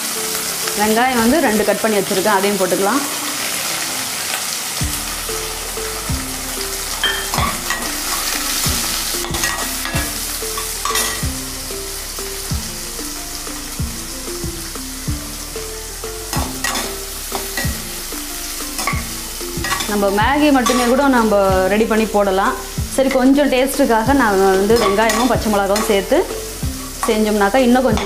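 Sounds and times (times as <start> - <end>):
vegetables sizzling in hot oil: 0.0 - 28.0
soft background music with beat: 2.9 - 28.0
metal spoon scraping a pan: 6.9 - 11.3, 16.3 - 17.9, 18.7 - 20.0, 24.7 - 28.0.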